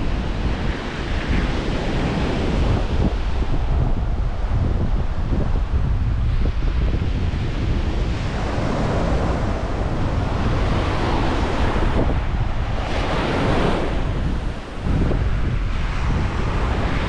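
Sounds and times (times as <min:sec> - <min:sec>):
surf breaking on beach: 0:00.0 - 0:17.0
wind buffeting microphone: 0:00.0 - 0:17.0.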